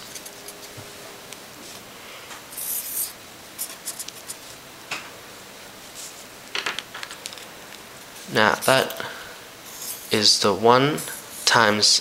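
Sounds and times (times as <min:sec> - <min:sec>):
marker scratching on paper: 0:02.5 - 0:04.5, 0:09.7 - 0:10.1.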